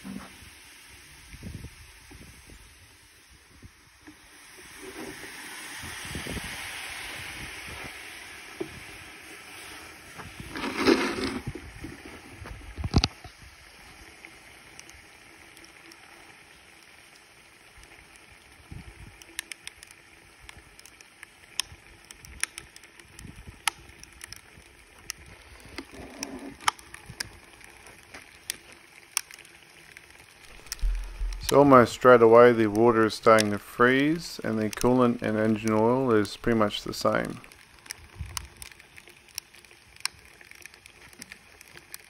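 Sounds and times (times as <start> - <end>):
liquid nitrogen bubbling: 0.0 - 42.0
liquid nitrogen hissing: 0.0 - 42.0
sharp ticks and cracks: 12.7 - 42.0.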